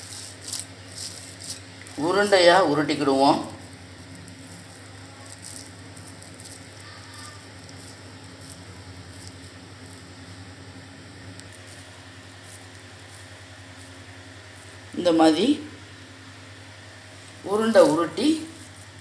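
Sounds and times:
hands squishing wet mixture: 0.0s - 10.5s
steady low hum: 0.0s - 19.0s.

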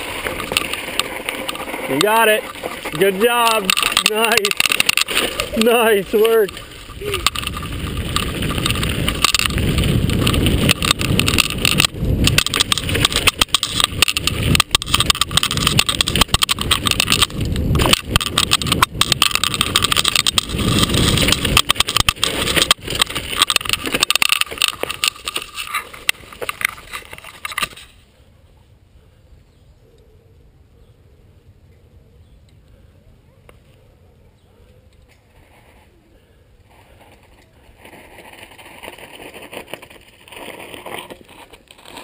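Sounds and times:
bike clattering and knocking: 0.0s - 27.8s
tyres rumbling on dirt: 0.0s - 27.9s
wind: 0.0s - 42.0s.

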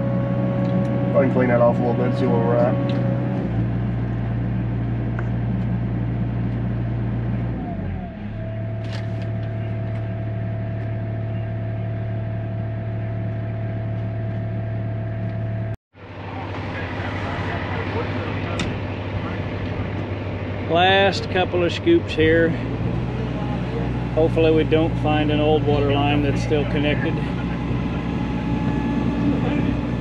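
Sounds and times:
diesel engine running: 0.0s - 30.0s
steady whine: 0.0s - 30.0s.

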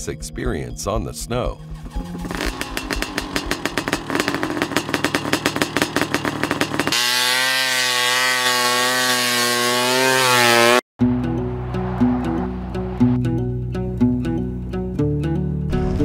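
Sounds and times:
snowmobile engine: 1.8s - 10.8s.

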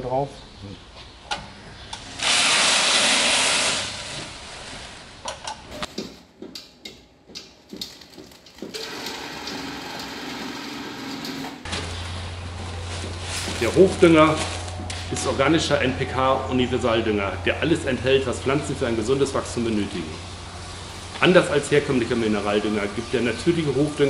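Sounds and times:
machine running: 2.1s - 4.8s, 8.6s - 16.0s
fertilizer pouring into sack: 2.2s - 5.0s.

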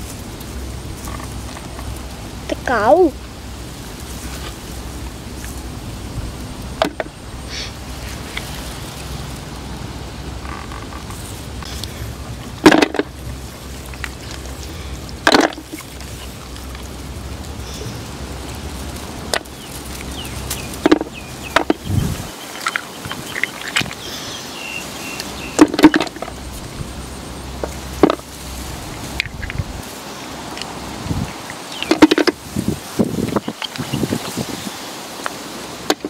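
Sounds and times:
sharp knocks: 6.8s - 7.1s.

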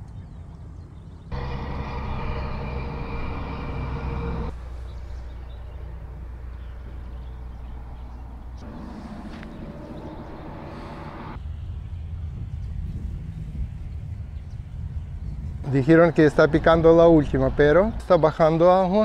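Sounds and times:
motor low drone: 0.0s - 15.8s
steady higher tones: 1.3s - 6.3s.

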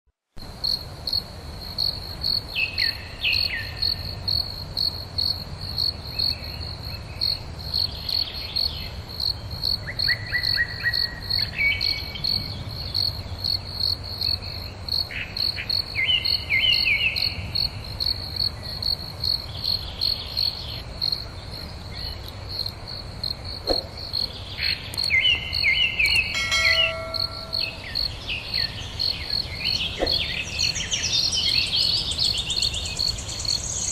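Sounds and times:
cricket chirping: 0.4s - 33.9s
birds calling: 19.4s - 33.9s.

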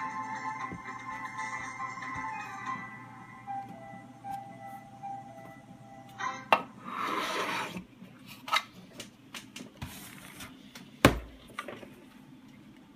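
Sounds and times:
box rubbing scrape on wooden desk: 6.9s - 7.8s.

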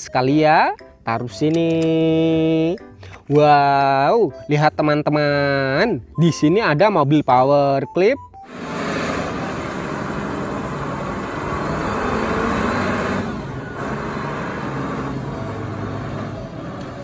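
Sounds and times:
forklift engine running: 8.4s - 17.0s.

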